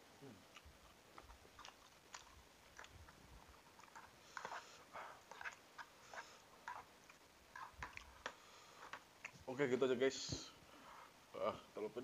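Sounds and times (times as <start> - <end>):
person chewing noodles: 0.2 - 9.4.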